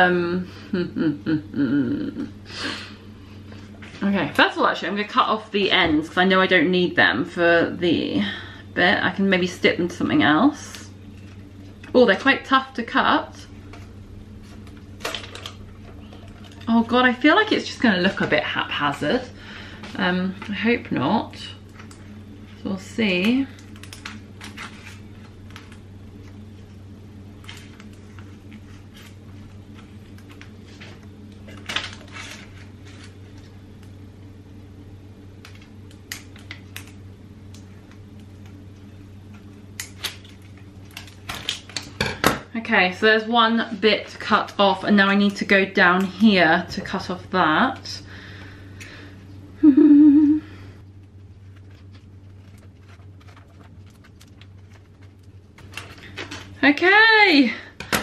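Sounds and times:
woman humming: 0:00.0 - 0:03.0, 0:49.6 - 0:50.7
plastic sheet crinkling: 0:19.9 - 0:26.7, 0:27.3 - 0:33.6, 0:50.8 - 0:56.7.

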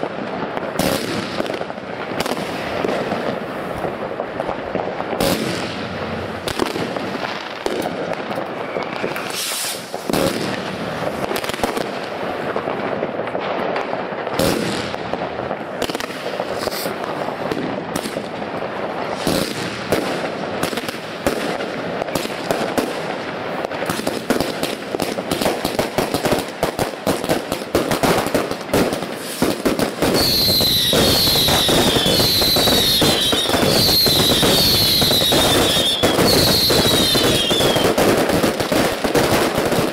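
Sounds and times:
fireworks bursting and crackling: 0:00.0 - 0:39.9
falling firework whistle: 0:08.4 - 0:10.6, 0:29.1 - 0:38.0.

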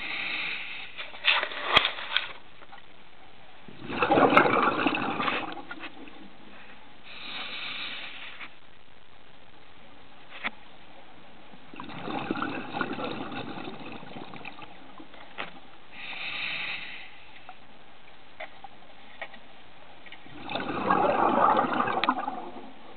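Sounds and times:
steady hiss: 0:00.0 - 0:04.1, 0:04.7 - 0:20.8
underwater breath bubbling: 0:03.7 - 0:08.5, 0:11.7 - 0:15.0, 0:15.9 - 0:17.6, 0:20.2 - 0:22.9.

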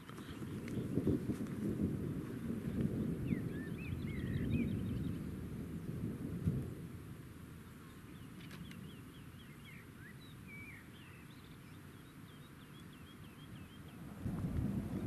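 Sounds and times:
wind rumble on microphone: 0:00.0 - 0:15.0
songbird chirping: 0:02.7 - 0:05.4, 0:07.6 - 0:15.0.

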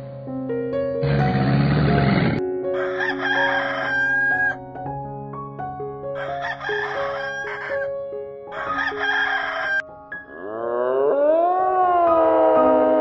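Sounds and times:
soft background music: 0:00.0 - 0:13.0
rooster crowing: 0:02.8 - 0:04.6, 0:06.2 - 0:07.9, 0:08.5 - 0:09.8
long pitched animal call: 0:10.3 - 0:13.0.

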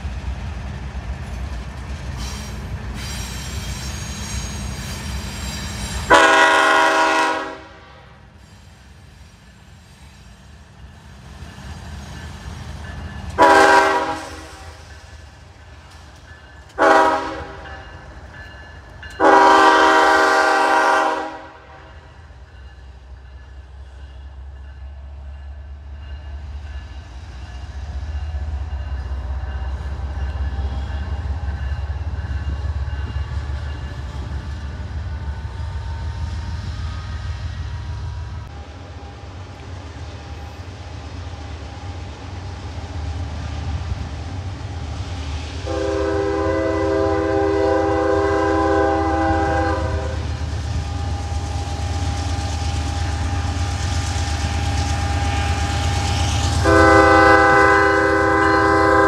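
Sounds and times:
diesel locomotive engines rumbling: 0:00.0 - 0:59.0
locomotive air horn chord: 0:06.1 - 0:08.3, 0:13.4 - 0:14.8, 0:16.8 - 0:17.7, 0:19.2 - 0:22.0, 0:45.6 - 0:50.3, 0:56.6 - 0:59.0.

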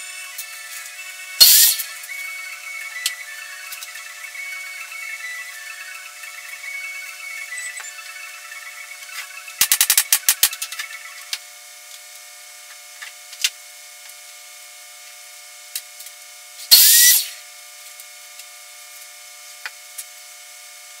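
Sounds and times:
air hissing burst: 0:01.4 - 0:02.1, 0:16.7 - 0:17.4
tool clicks: 0:09.6 - 0:10.8
short rising whistle: 0:16.7 - 0:17.4.

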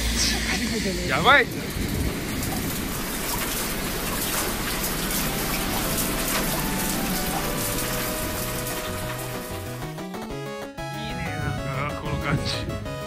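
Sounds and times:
hail pelting wet pavement: 0:01.8 - 0:10.4
soft background music: 0:05.0 - 0:13.0.

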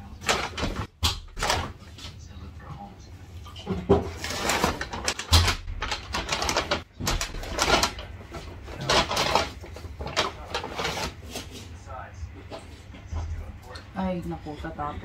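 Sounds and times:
paper bag rustling: 0:03.8 - 0:11.8.

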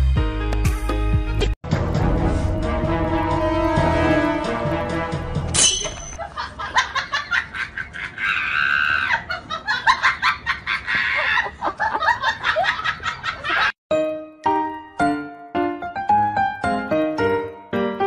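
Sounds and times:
background music: 0:00.0 - 0:06.2, 0:13.9 - 0:18.0.

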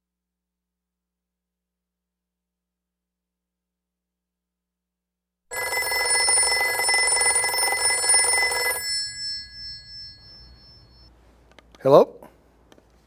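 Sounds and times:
telephone bell ringing: 0:05.5 - 0:11.1.

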